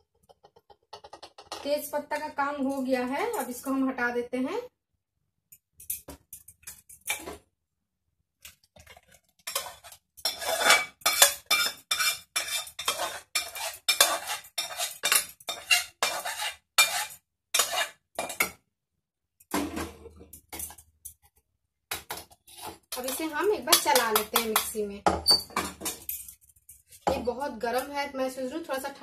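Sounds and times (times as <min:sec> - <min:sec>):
metal spoon clinking and scraping: 0:00.2 - 0:03.7, 0:05.5 - 0:07.4, 0:08.8 - 0:18.6, 0:20.3 - 0:21.3, 0:22.1 - 0:27.9.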